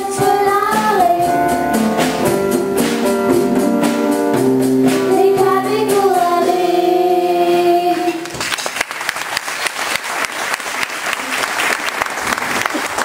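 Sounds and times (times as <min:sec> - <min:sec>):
girls singing into microphones: 0:00.0 - 0:01.6, 0:04.9 - 0:08.3
live band playing: 0:00.0 - 0:08.3
audience applauding: 0:08.2 - 0:13.0.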